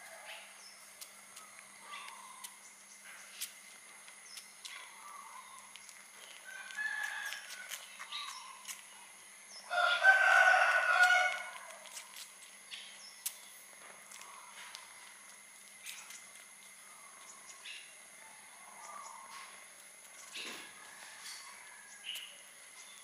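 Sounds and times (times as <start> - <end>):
rooster crowing: 6.4 - 7.8, 9.7 - 11.8, 20.6 - 22.2.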